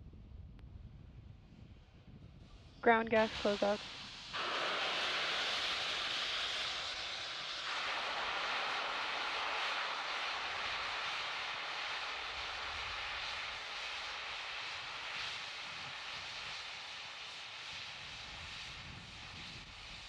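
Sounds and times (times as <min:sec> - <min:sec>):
rocket venting vapour hiss: 0:02.6 - 0:20.0.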